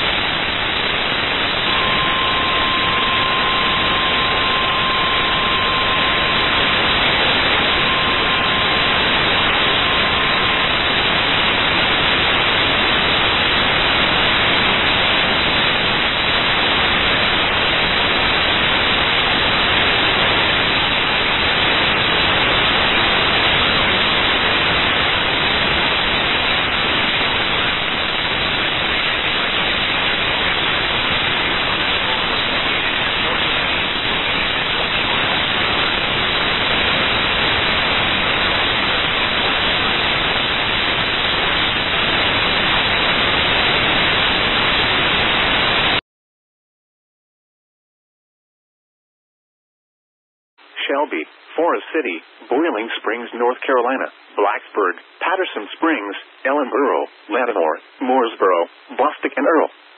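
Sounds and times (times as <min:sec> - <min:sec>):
radio static hiss: 0:00.0 - 0:46.0, 0:50.6 - 0:59.9
steady alarm beep: 0:00.9 - 0:12.0.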